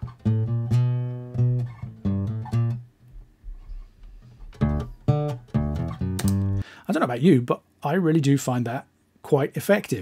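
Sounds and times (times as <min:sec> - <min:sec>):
plucked acoustic bass notes: 0:00.0 - 0:03.6, 0:04.4 - 0:06.6.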